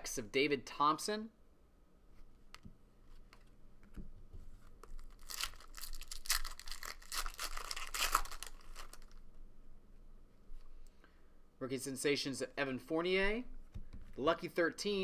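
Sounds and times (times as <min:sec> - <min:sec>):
wrapper tearing and crinkling: 0:04.8 - 0:09.2.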